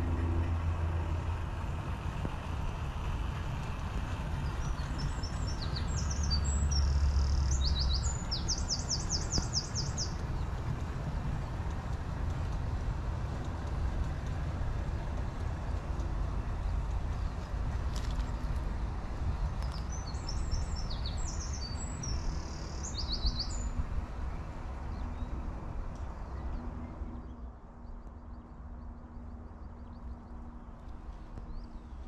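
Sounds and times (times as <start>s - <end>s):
passing train rumble: 0.0s - 32.0s
small bird singing: 4.4s - 10.5s, 19.6s - 23.8s.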